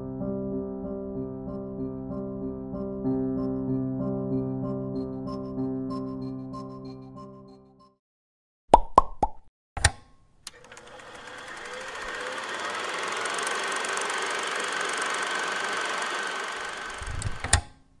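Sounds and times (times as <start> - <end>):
mechanical whirr with ticking: 10.5 - 17.7.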